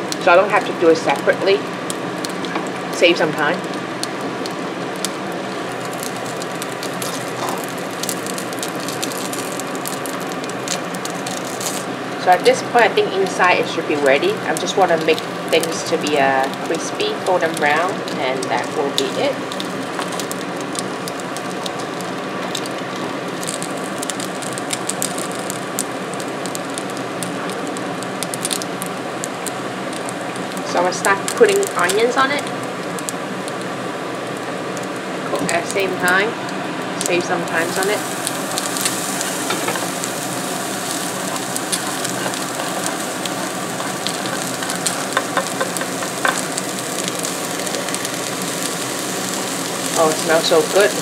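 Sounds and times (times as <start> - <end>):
dumplings sizzling in oil: 0.0 - 51.0
tongs turning food: 37.6 - 51.0.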